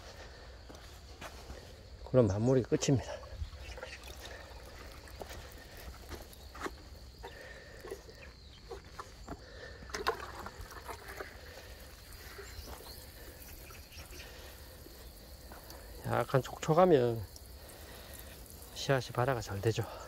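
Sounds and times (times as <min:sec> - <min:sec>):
watering can spraying onto soil: 0:03.6 - 0:07.0, 0:09.9 - 0:20.0.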